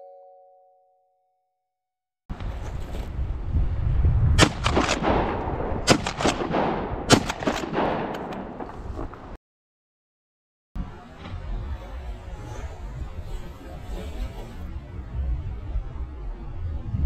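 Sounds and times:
wind on microphone: 2.3s - 7.2s, 12.6s - 17.0s
shotgun firing: 4.4s - 8.8s.

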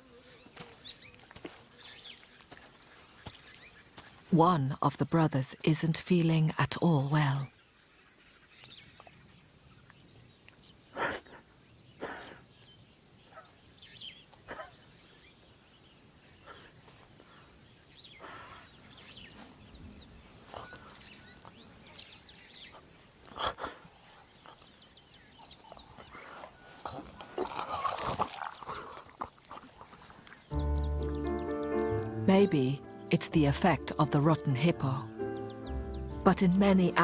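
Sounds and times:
lion retching: 25.4s - 30.0s.

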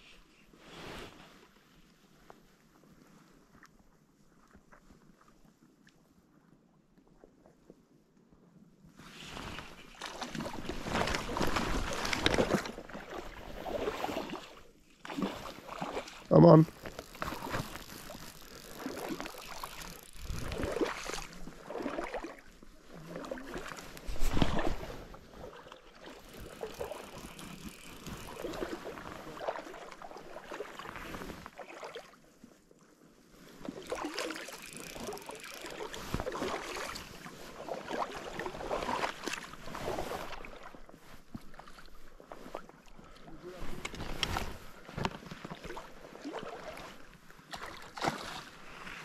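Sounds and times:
fish splashing and thrashing in water: 9.9s - 32.2s, 33.6s - 40.7s, 47.5s - 48.6s.

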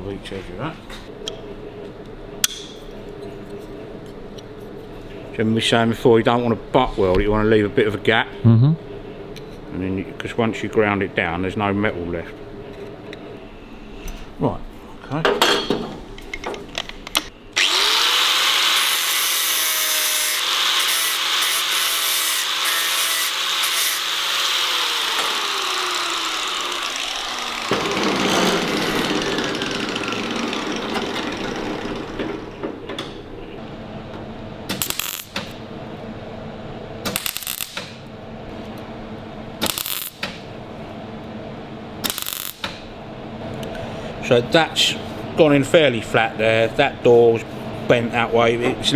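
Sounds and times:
angle grinder grinding metal: 17.6s - 32.2s
welder crackling: 34.7s - 35.6s, 37.1s - 38.0s, 39.6s - 40.3s, 42.0s - 42.8s.

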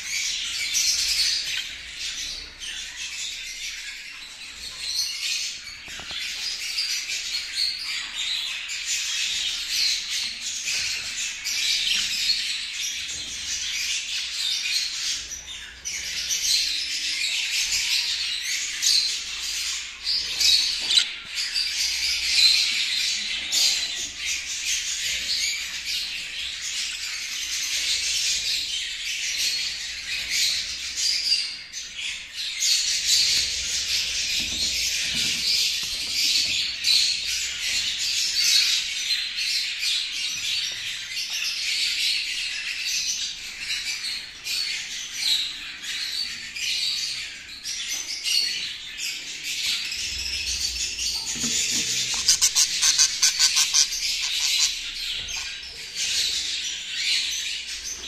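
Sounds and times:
budgerigars chattering: 48.6s - 58.0s.

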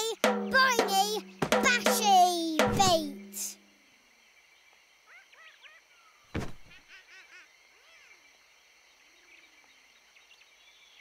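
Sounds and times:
jungle ambience: 0.0s - 11.0s
deep thump: 0.2s - 3.4s.

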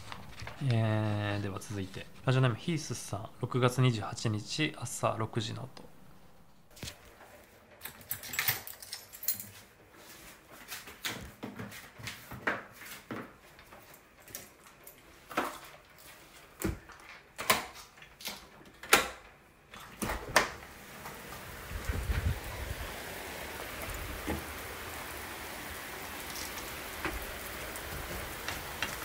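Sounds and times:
heavy rain hissing: 0.0s - 6.7s, 20.7s - 29.0s
front door unlocking and opening: 7.8s - 9.5s
keys clicking and rustling: 7.8s - 9.7s.

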